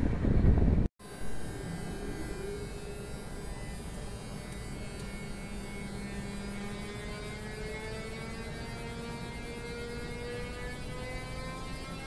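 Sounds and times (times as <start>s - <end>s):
electric locomotive humming: 0.0s - 12.0s
rising electrical whine: 0.0s - 12.0s.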